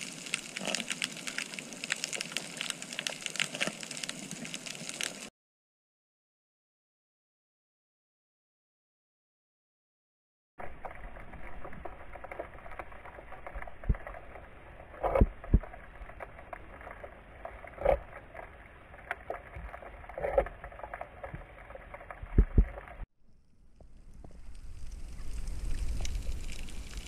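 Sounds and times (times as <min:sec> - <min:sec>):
muffled underwater water wash: 0:10.6 - 0:27.0.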